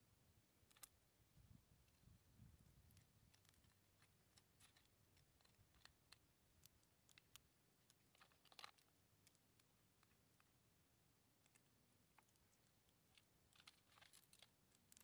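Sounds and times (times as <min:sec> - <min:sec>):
crab shell cracking: 0:02.9 - 0:10.5, 0:11.4 - 0:15.0.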